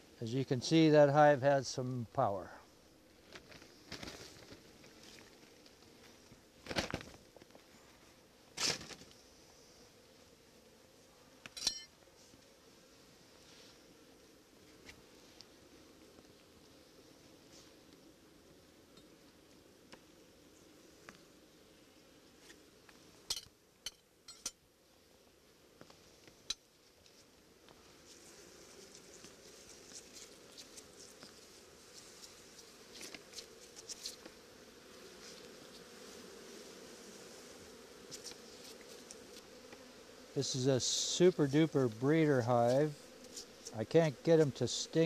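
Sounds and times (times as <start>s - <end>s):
low hum of honeybees: 0.0s - 45.0s
bees humming: 27.8s - 45.0s.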